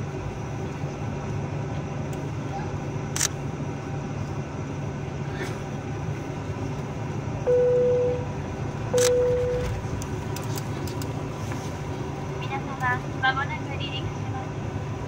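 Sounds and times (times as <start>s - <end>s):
aircraft engines idling hum: 0.0s - 15.0s
short clear tones: 7.5s - 8.3s, 9.0s - 9.8s.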